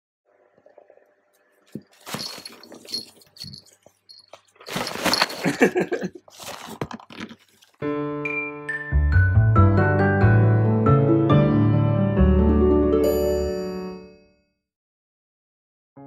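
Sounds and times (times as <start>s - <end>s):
fabric tunnel rustling and crinkling: 1.7s - 7.8s.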